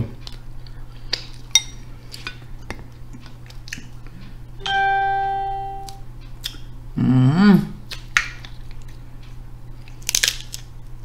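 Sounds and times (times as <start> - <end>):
ringing chime: 4.6 - 6.0
crab shell cracking: 9.8 - 10.7.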